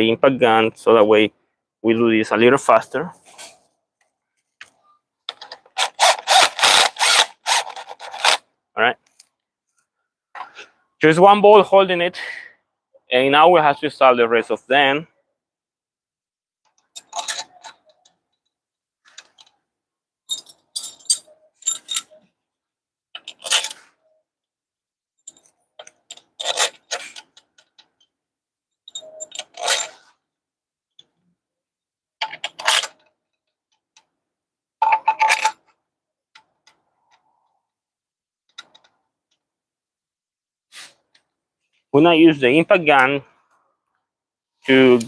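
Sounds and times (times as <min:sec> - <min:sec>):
metal bolts clinking: 0:16.9 - 0:18.4, 0:20.3 - 0:22.3, 0:25.2 - 0:28.1, 0:28.8 - 0:30.1, 0:34.8 - 0:35.7.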